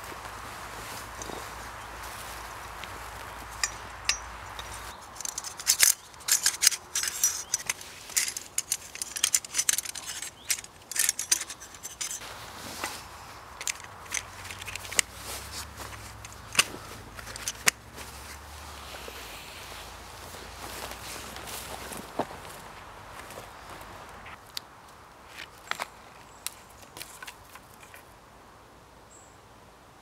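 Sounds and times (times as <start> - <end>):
metal tent poles clinking: 0.0 - 22.2.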